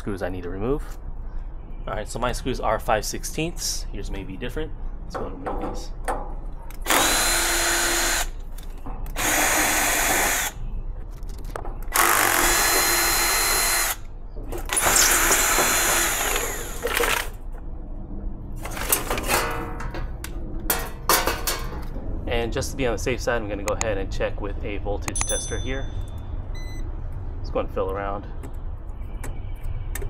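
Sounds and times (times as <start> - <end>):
cordless drill backing out screws: 14.7 - 17.3
metal panel rattling: 18.6 - 22.0.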